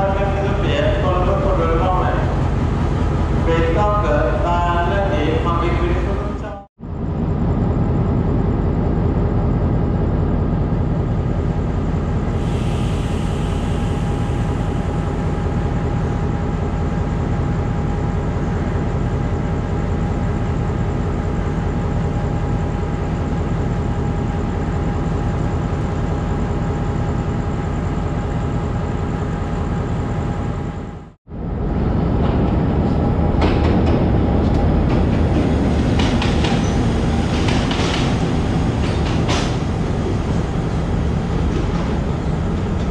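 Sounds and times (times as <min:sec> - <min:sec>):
diesel locomotive engine running: 0:00.0 - 0:42.9
locomotive rumbling past: 0:31.3 - 0:42.9
train wheels clicking: 0:33.4 - 0:42.9.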